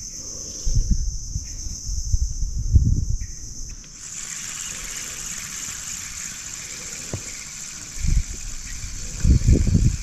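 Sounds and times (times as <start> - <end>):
high insect chorus: 0.0 - 10.0
fishing reel whirring and ticking: 3.8 - 10.0.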